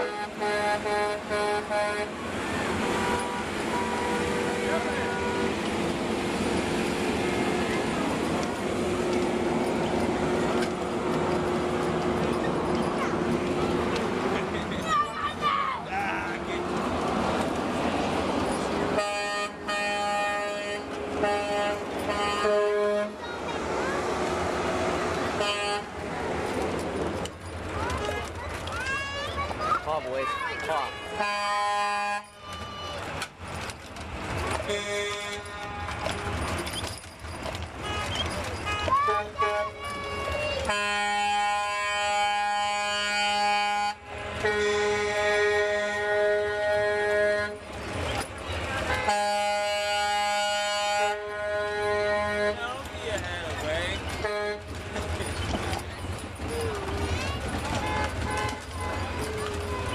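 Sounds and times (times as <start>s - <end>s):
vehicle horn blasts: 0.0s - 2.2s, 3.0s - 5.6s, 19.0s - 23.2s, 25.4s - 25.9s, 30.9s - 32.4s, 34.7s - 36.5s, 37.8s - 39.8s, 40.6s - 47.6s, 49.0s - 52.7s, 54.2s - 54.8s
people's voices: 0.0s - 59.9s.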